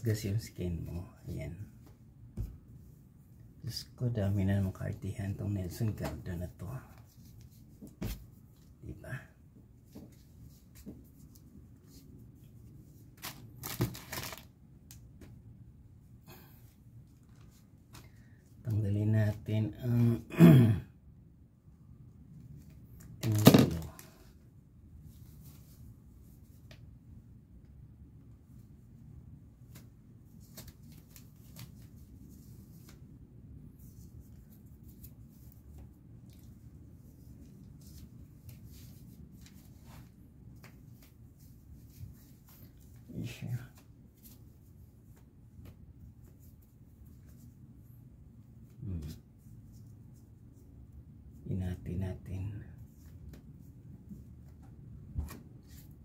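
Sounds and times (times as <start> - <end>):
plastic packaging crinkling: 13.2 - 14.5.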